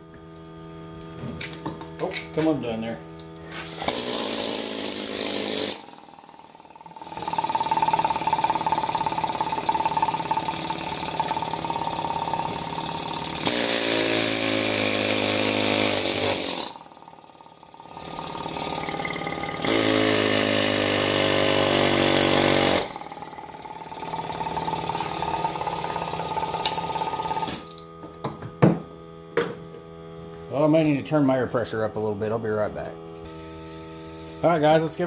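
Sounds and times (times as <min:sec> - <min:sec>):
pneumatic air chisel hammering: 0:03.4 - 0:28.8.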